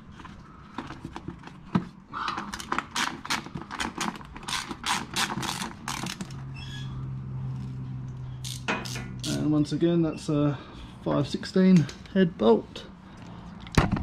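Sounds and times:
hand ratchet clicking: 2.6s - 6.3s, 8.4s - 9.5s.

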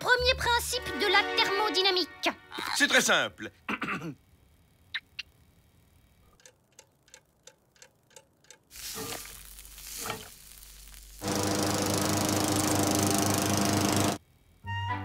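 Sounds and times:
steady ticking: 6.3s - 8.7s
egg sizzling in a frying pan: 8.7s - 12.7s
lawn mower engine running: 11.2s - 14.2s.

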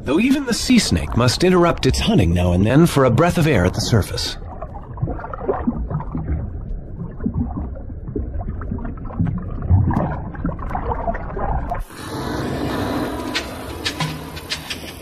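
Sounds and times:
underwater churning and bubbling: 0.0s - 15.0s
steady hiss: 11.8s - 15.0s.

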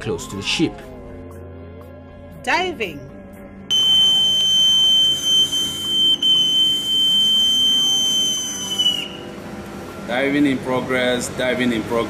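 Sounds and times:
bosun's pipe whistle: 3.7s - 9.4s.

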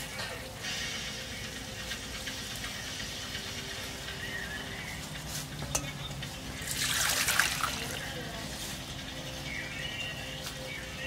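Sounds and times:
water sloshing in steel bowl: 6.6s - 8.0s.

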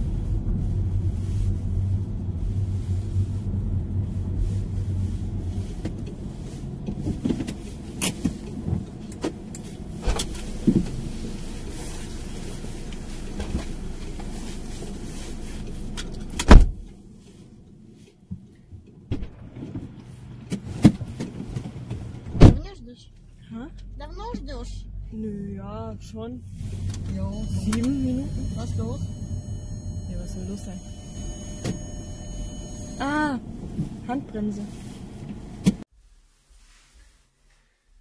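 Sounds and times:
car engine running: 0.0s - 17.9s, 19.1s - 35.8s
loud thump: 22.3s - 22.7s.

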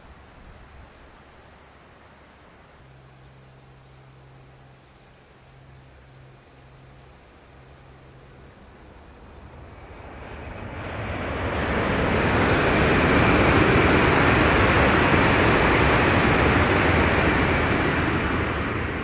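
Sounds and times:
faint high whine: 0.0s - 19.0s
train passing at speed: 7.0s - 19.0s.

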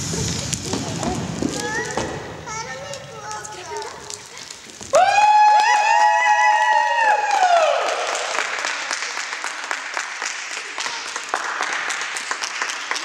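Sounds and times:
crowd applauding: 4.9s - 13.0s.

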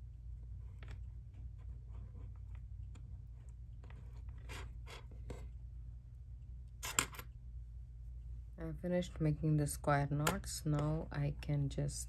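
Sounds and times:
cord rustling and scraping: 0.5s - 5.6s.

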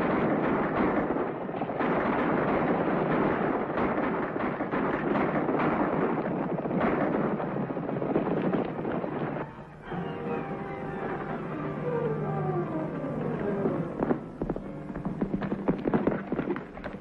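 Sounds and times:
music: 9.5s - 17.0s.

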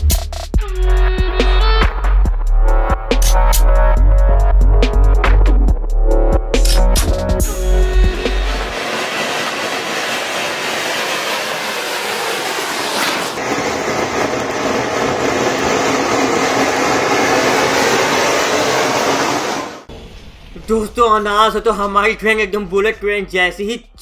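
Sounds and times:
fountain firework hissing: 7.5s - 19.9s.

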